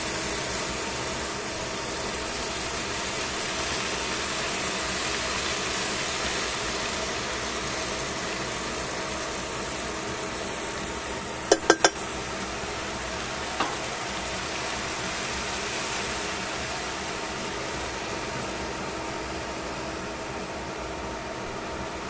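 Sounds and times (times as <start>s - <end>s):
vegetables sizzling in a pan: 0.0s - 22.0s
tongs clacking against pan: 11.5s - 12.0s.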